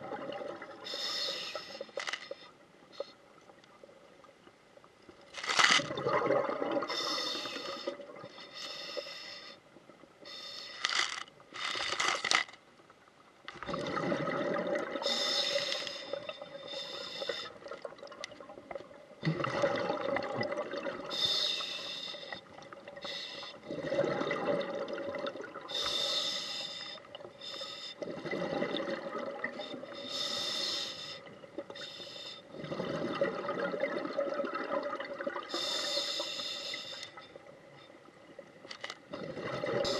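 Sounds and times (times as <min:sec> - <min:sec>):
exhaled bubbles rushing: 0:00.0 - 0:00.9, 0:05.8 - 0:08.3, 0:13.6 - 0:15.2, 0:17.6 - 0:21.2, 0:23.6 - 0:25.7, 0:28.0 - 0:30.0, 0:32.5 - 0:35.5, 0:39.1 - 0:39.9
regulator inhale hiss: 0:00.8 - 0:03.2, 0:06.9 - 0:09.6, 0:10.2 - 0:11.2, 0:15.0 - 0:17.6, 0:21.1 - 0:23.6, 0:25.7 - 0:28.0, 0:29.6 - 0:32.6, 0:35.5 - 0:37.3.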